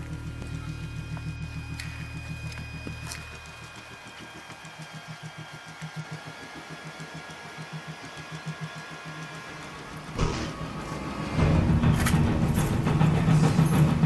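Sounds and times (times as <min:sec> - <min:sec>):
low mechanical pulsing: 0:00.0 - 0:04.1.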